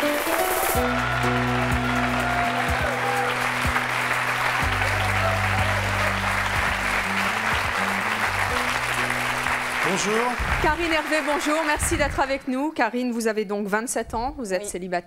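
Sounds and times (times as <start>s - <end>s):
background music with bass: 0.0s - 10.9s
audience applauding: 0.0s - 12.4s.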